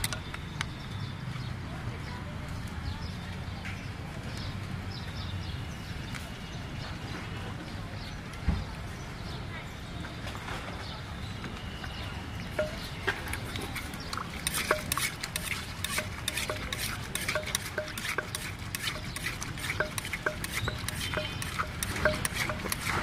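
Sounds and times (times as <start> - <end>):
wooden pestle pounding clay mortar: 12.6 - 23.0.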